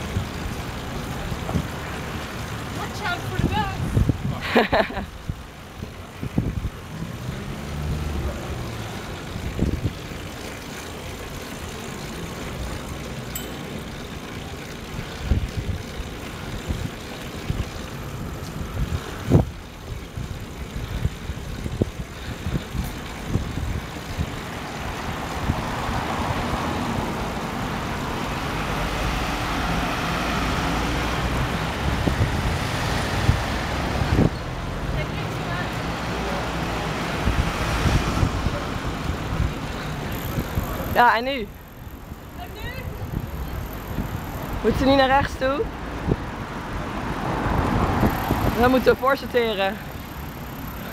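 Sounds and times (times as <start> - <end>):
cars passing: 0.0 - 50.9
wind and road noise: 0.0 - 50.9
bike rattling over bumps: 38.3 - 45.6, 48.0 - 50.9.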